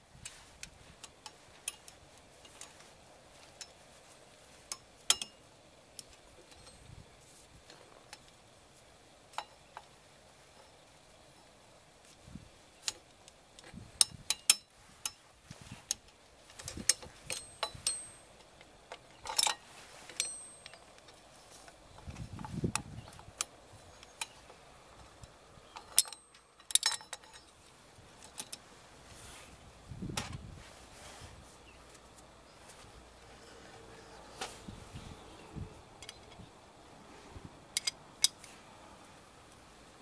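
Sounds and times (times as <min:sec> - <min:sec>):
metallic clicks and clinks: 0:04.7 - 0:05.4, 0:15.9 - 0:23.5, 0:25.2 - 0:28.6.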